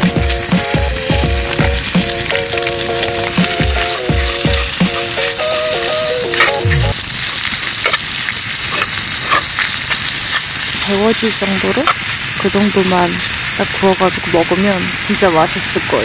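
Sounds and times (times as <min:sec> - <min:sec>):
melody with a beat: 0:00.0 - 0:07.0
food sizzling in butter: 0:00.0 - 0:16.0.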